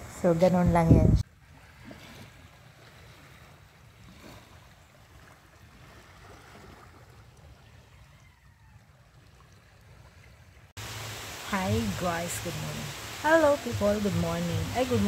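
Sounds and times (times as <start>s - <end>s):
stream flowing over stones: 10.2s - 15.0s.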